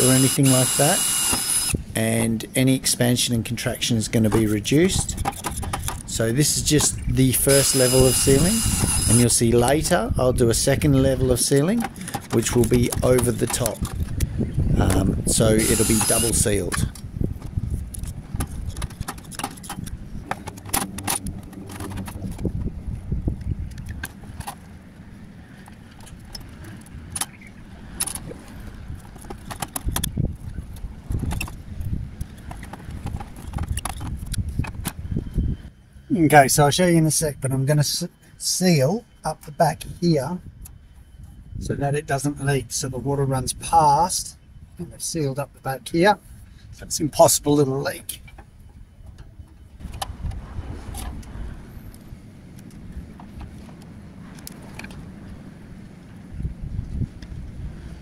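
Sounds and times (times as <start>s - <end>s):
caulking gun squeezing: 0.0s - 1.8s, 6.9s - 9.3s, 15.6s - 17.0s
low rumble: 19.8s - 24.4s.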